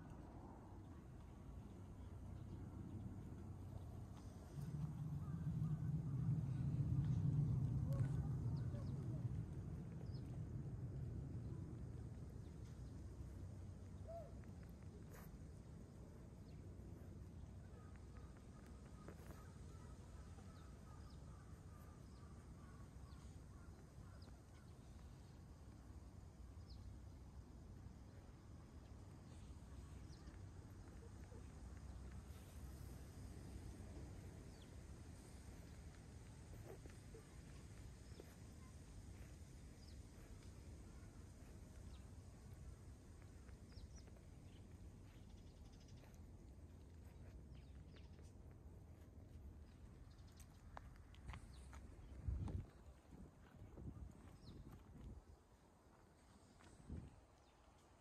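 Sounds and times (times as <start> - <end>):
low rumble: 0.0 - 14.0.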